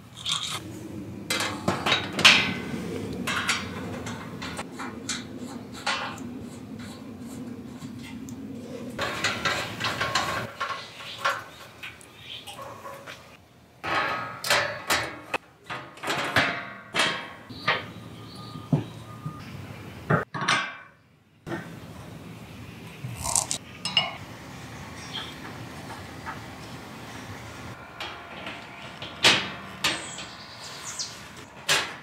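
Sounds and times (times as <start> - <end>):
metal sliding and rubbing: 0.4 - 11.5
metal panels clanking: 0.6 - 19.0, 25.0 - 32.0.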